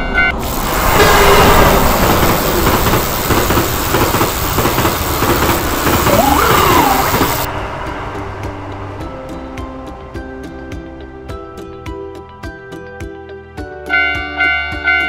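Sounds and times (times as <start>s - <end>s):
rising and falling tone: 5.8s - 7.6s
music: 6.7s - 15.0s.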